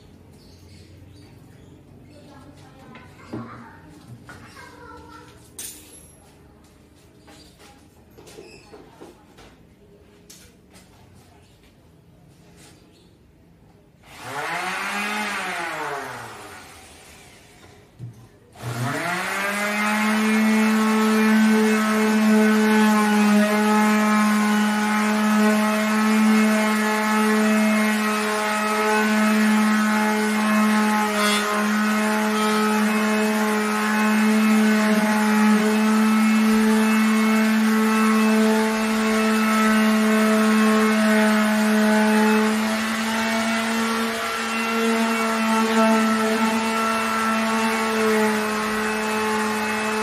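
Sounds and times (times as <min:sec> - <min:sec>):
electric orbital sander running: 0:14.0 - 0:17.6, 0:18.6 - 0:50.0.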